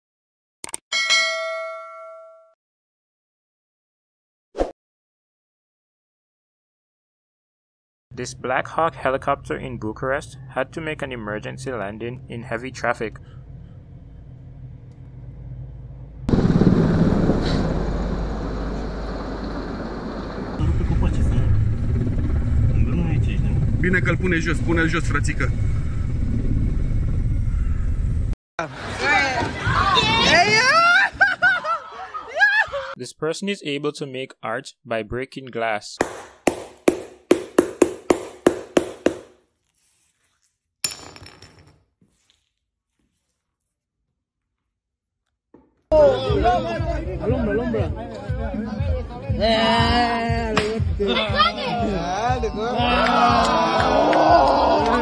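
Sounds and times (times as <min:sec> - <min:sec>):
helicopter hovering overhead: 0:16.3 - 0:28.3
sharp knock: 0:36.0 - 0:39.3.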